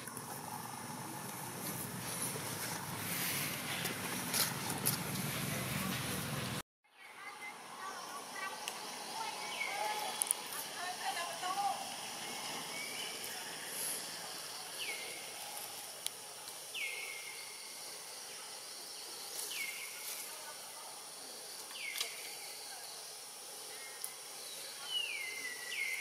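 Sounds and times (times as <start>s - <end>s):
steady high hiss: 7.2s - 26.0s.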